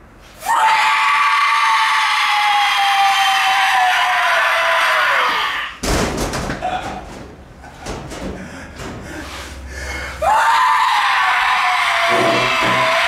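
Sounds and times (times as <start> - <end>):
person screaming: 0.4 - 5.8, 10.2 - 13.0
knocks: 5.8 - 9.1, 12.1 - 13.0.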